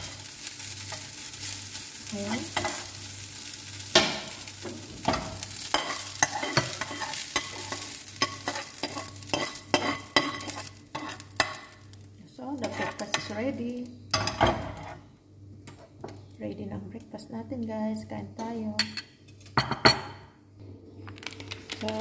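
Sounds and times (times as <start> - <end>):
rice sizzling in pan: 0.0 - 15.1, 21.0 - 22.0
metal spoon scraping frying pan: 2.5 - 2.9, 5.1 - 11.6, 12.6 - 13.4.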